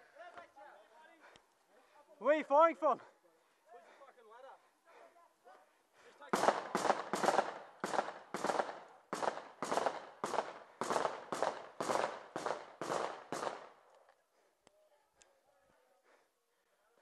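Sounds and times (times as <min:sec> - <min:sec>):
echoing gunshots: 0:06.3 - 0:13.8.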